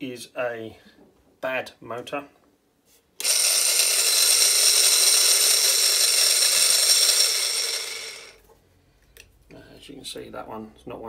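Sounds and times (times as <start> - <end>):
small electric motor whining: 3.2 - 8.4.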